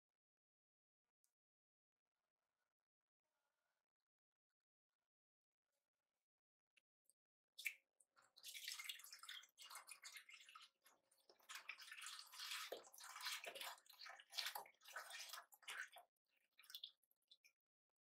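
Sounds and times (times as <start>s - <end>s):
milk pouring into metal pot: 8.2s - 17.0s.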